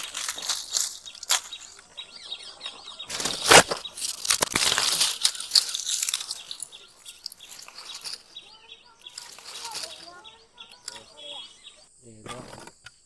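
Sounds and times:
loud crunch: 0:00.0 - 0:11.3
dry twigs and leaves rustling: 0:00.0 - 0:12.8.

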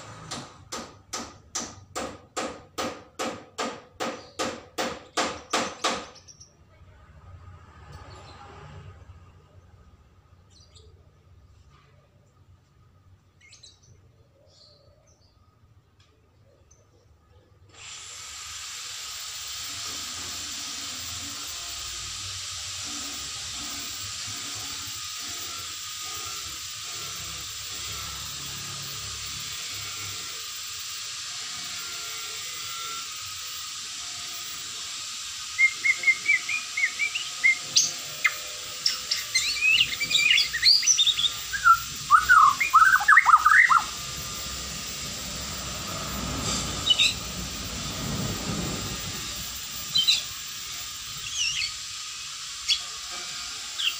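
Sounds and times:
bird chirping song: 0:13.3 - 0:15.5, 0:35.6 - 0:43.9, 0:49.9 - 0:50.3
steady hiss: 0:17.8 - 0:53.9.

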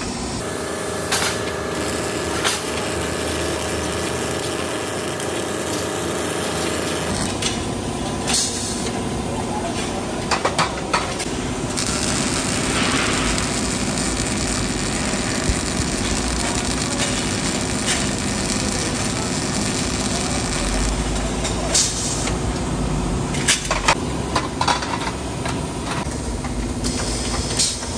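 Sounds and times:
welding gun running: 0:00.4 - 0:07.6, 0:11.2 - 0:22.4.

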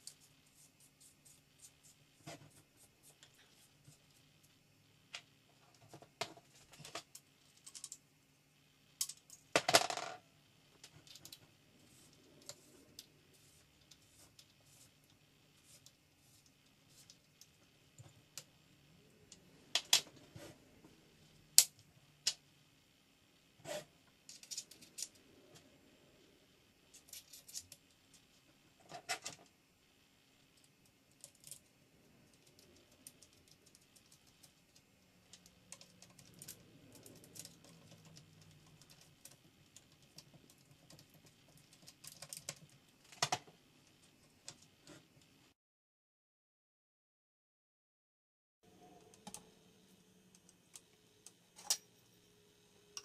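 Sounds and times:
small metal parts clicking: 0:06.8 - 0:08.0, 0:31.1 - 0:31.7.

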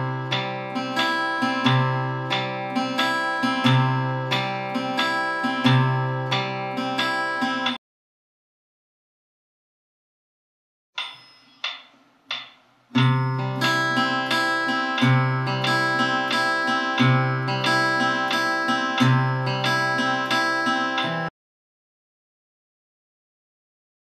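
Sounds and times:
fingerpicked acoustic guitar: 0:00.0 - 0:07.8, 0:12.9 - 0:21.3.

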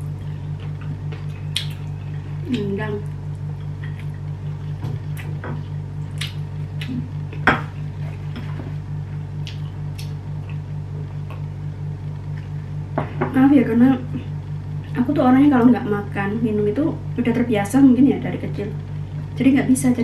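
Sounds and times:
steady low hum: 0:00.0 - 0:20.0
person chewing crunchy food: 0:00.1 - 0:02.6, 0:03.3 - 0:11.6.

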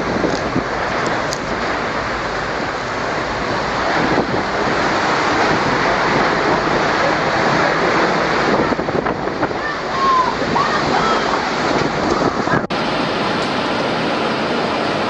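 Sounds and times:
strong wind with driving rain: 0:00.0 - 0:15.0.

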